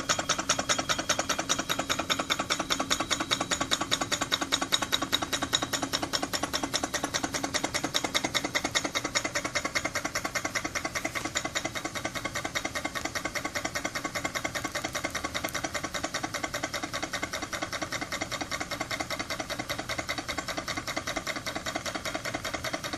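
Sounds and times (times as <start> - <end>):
miniature steam engine beat: 0.0 - 22.9.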